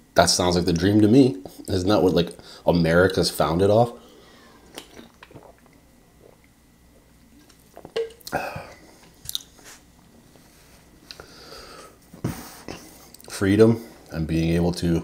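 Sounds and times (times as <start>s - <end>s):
person drinking and swallowing: 4.6s - 9.5s.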